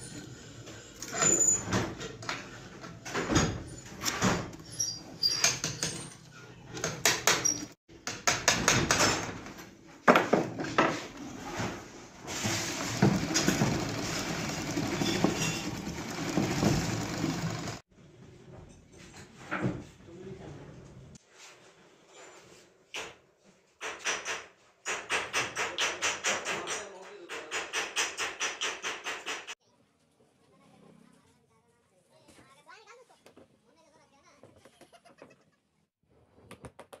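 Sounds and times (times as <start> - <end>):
sewing machine clattering: 12.3 - 17.8.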